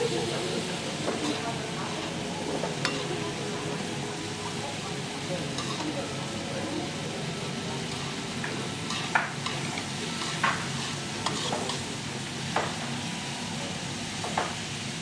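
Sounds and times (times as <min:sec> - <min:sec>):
vegetables sizzling in a pan: 0:00.0 - 0:15.0
metal spoons scraping a pan: 0:02.8 - 0:03.1, 0:05.6 - 0:05.9, 0:08.9 - 0:11.9.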